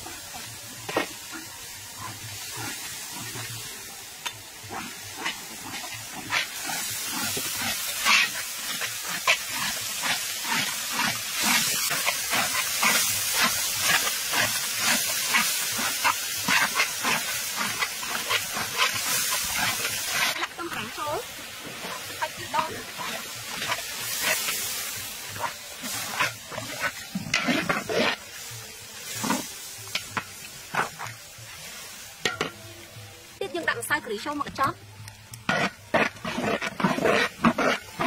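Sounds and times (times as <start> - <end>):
metal ladle scraping a wok: 0.0 - 32.7, 35.3 - 38.0
paste sizzling in oil: 0.0 - 38.0.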